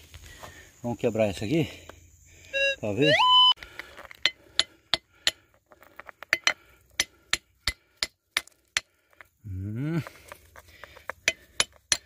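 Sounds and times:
brief steady tone: 2.5 - 3.6.

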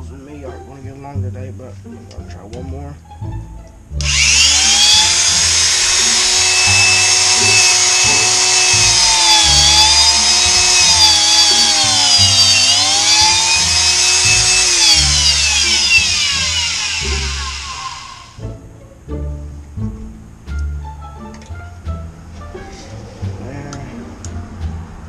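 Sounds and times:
rotary tool whining: 4.0 - 18.4.

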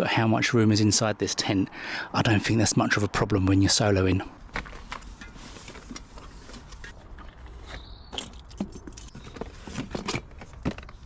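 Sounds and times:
rummaging in cardboard box: 4.6 - 7.9, 8.6 - 11.0.

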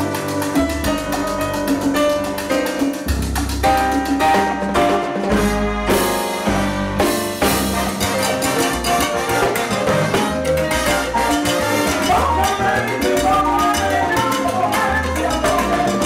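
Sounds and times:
live salsa band playing: 0.0 - 16.0
trombone and trumpet chords: 4.7 - 13.8.

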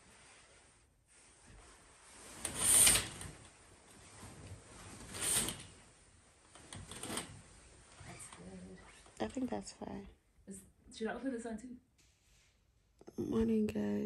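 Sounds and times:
curtain runners sliding on track: 0.0 - 9.2.

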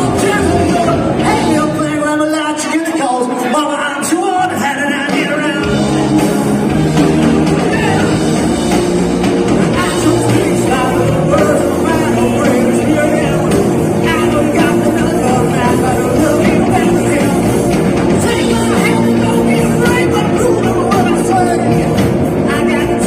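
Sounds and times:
person singing: 0.0 - 2.5, 7.0 - 23.0
live rock band playing: 0.0 - 23.0.

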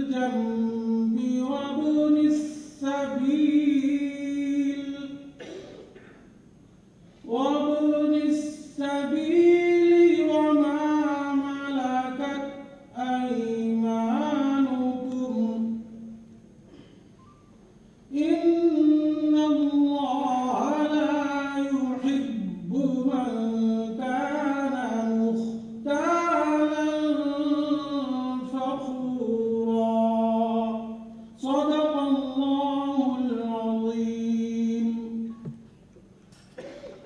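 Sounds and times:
person chanting unaccompanied: 7.3 - 15.9, 18.1 - 35.3.

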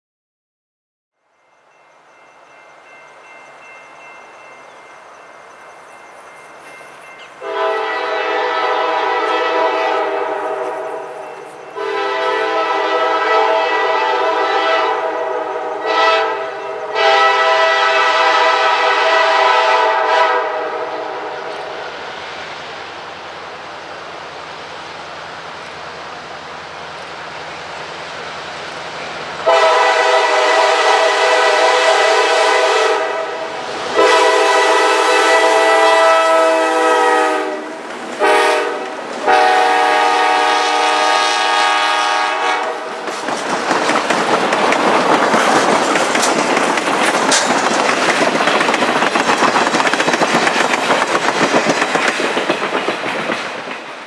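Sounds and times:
train on rails: 1.1 - 54.0
locomotive air horn blasts: 7.4 - 11.2, 11.8 - 21.5, 29.4 - 43.0.

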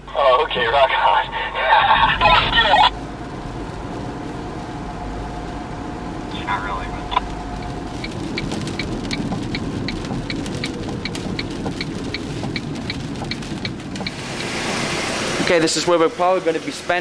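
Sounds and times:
steady rushing noise: 0.0 - 17.0
car indicator ticking: 7.1 - 14.5.

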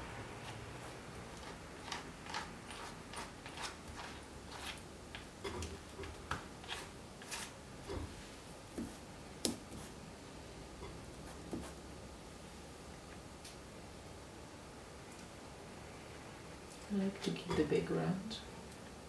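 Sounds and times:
painting tool scraping and tapping: 0.4 - 8.2.

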